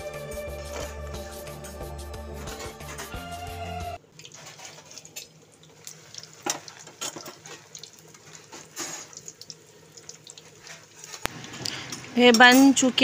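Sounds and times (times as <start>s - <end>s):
food deep-frying in oil: 4.0s - 13.0s
sharp crackles of frying oil: 4.0s - 13.0s.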